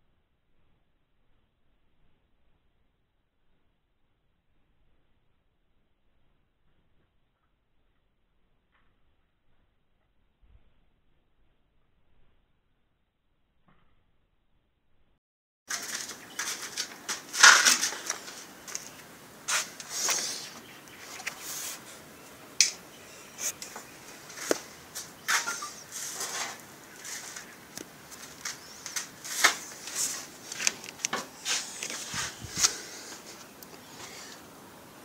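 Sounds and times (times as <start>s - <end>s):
sharp clicks: 15.7s - 25.9s
handling rustles: 15.7s - 34.4s.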